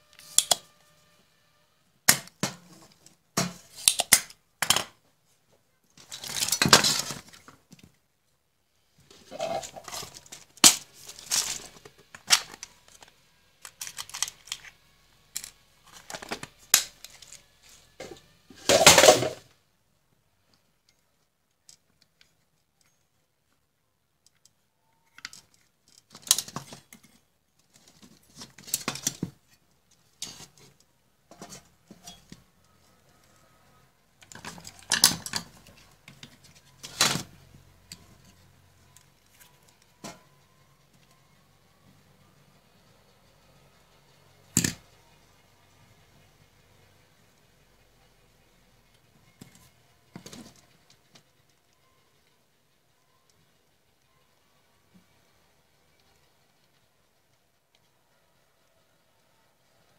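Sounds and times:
sharp clicks and rustles: 5.8 - 8.0, 9.0 - 19.5, 20.4 - 41.2
metal case scraping and clinking: 9.1 - 12.7, 18.1 - 19.4.

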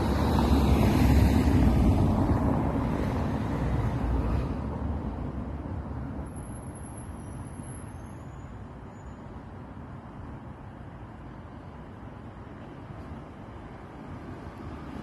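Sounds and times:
road vehicle passing: 0.0 - 5.6.

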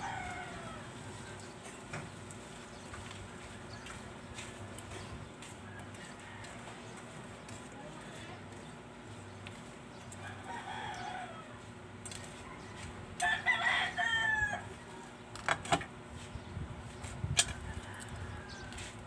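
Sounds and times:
rooster crowing: 0.0 - 1.4, 5.6 - 7.0, 10.2 - 11.7, 12.4 - 15.1, 17.5 - 19.0.

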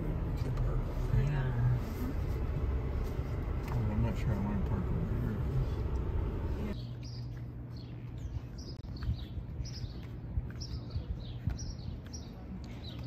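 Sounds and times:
loud rumble: 0.0 - 6.8
low steady hum: 0.0 - 13.0
small birds chirping: 3.4 - 13.0.

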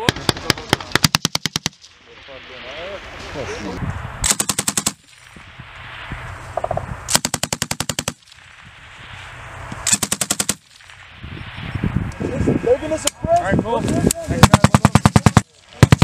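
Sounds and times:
machine gun firing bursts: 0.1 - 1.8, 4.3 - 5.1, 7.1 - 8.2, 9.9 - 10.7, 14.4 - 16.0.

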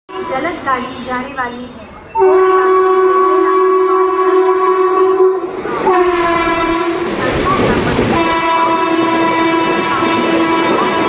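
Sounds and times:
passing train rumble: 0.1 - 11.0
locomotive horn blasts: 2.2 - 7.1, 8.1 - 11.0.

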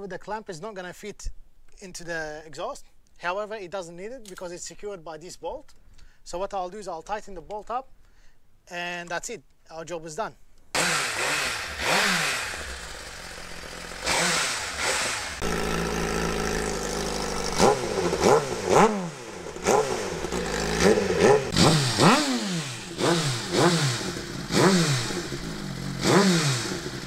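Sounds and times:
motorcycle engine revving: 10.8 - 27.0.

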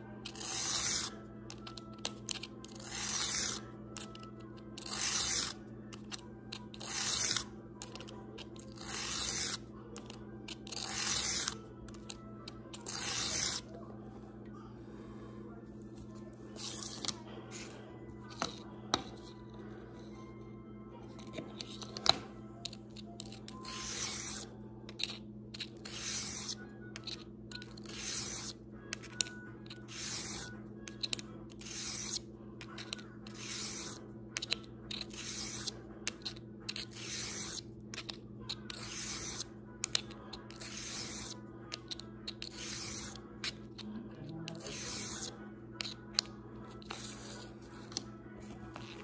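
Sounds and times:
blade scraping on sharpening stone: 0.2 - 4.2, 4.8 - 12.1, 12.7 - 13.7, 21.6 - 43.8, 44.5 - 47.9.

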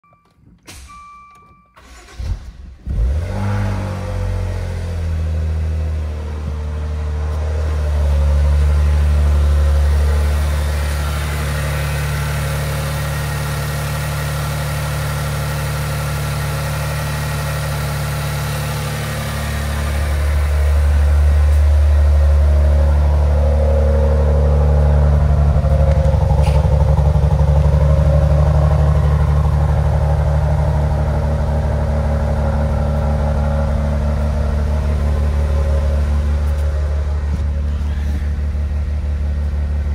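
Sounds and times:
short electronic beep: 0.0 - 1.9
car engine starting and idling: 0.0 - 39.9.

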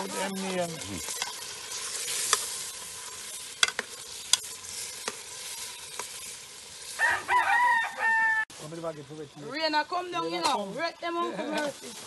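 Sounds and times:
food sizzling in a pot: 0.0 - 12.0.

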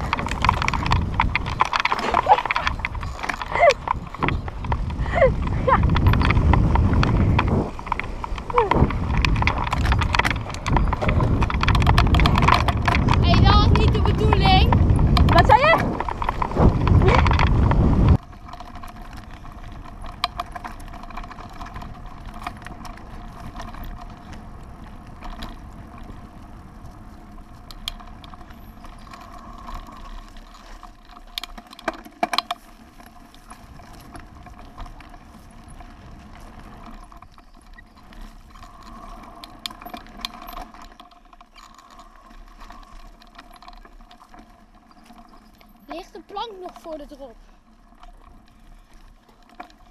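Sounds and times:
tyres and wind hissing: 0.0 - 30.7
bike chain clicking and rattling: 0.0 - 49.9.

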